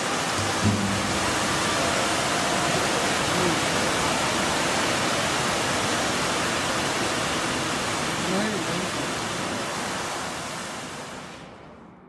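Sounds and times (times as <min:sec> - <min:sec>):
fountain water spraying: 0:00.0 - 0:11.5.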